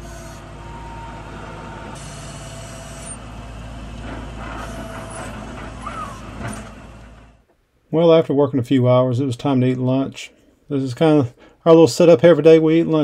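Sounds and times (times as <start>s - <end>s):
thin mechanical whine: 0.0s - 7.3s
skid steer engine running: 0.0s - 7.4s.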